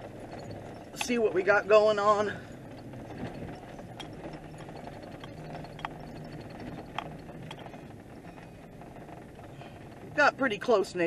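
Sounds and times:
engine and road hum: 0.0 - 11.0
vehicle body knocks and rattles: 2.5 - 10.3.

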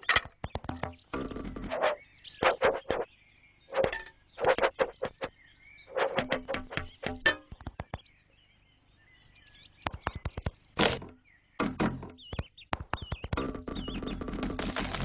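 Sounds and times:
cartoon knocks and thunks: 0.0 - 3.0, 6.1 - 8.0, 9.8 - 14.9.

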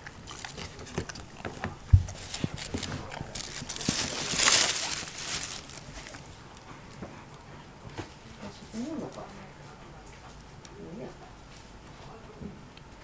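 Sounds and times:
fabric and fur rustling: 2.1 - 6.3.

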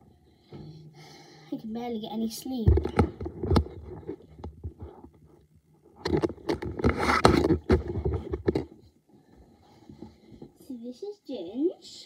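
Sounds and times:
phone handling scraping and knocks: 6.0 - 8.7.

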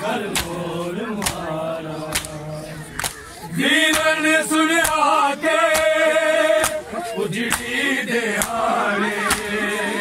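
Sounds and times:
men chanting a lament: 0.0 - 10.0
hands slapping chests: 0.3 - 0.6, 1.2 - 1.5, 2.1 - 3.3, 3.9 - 4.2, 4.8 - 5.1, 5.7 - 6.0, 6.6 - 6.8, 7.5 - 7.8, 8.4 - 8.7, 9.3 - 9.6.

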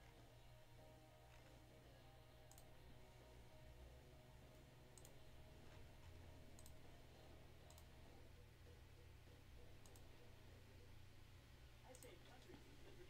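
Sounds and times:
low steady hum: 0.0 - 13.0
faint computer mouse clicks: 2.5 - 2.7, 4.9 - 5.2, 6.5 - 6.8, 7.6 - 7.9, 9.8 - 10.1, 11.9 - 12.1.

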